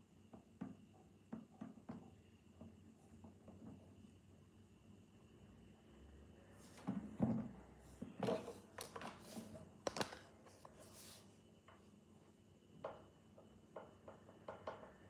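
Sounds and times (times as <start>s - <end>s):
toys knocking on tile floor: 13.7s - 15.0s.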